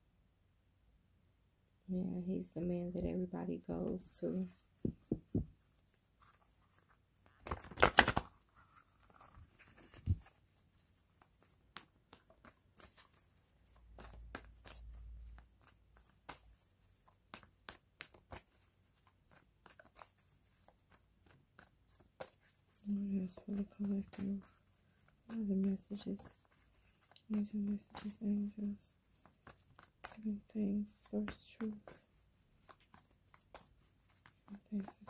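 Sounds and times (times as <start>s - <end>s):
cards shuffling flicks: 4.6s - 35.0s
cards clicking as handled: 7.3s - 8.4s.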